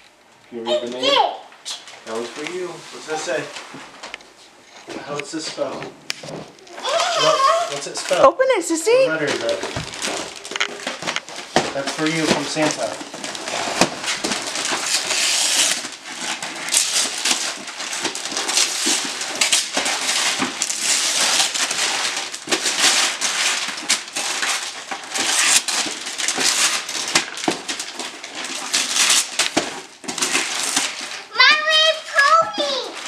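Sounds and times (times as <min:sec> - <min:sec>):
paper crackles: 0:06.2 - 0:08.3, 0:09.1 - 0:33.0
wrapping paper tearing: 0:06.2 - 0:08.3, 0:09.1 - 0:33.0.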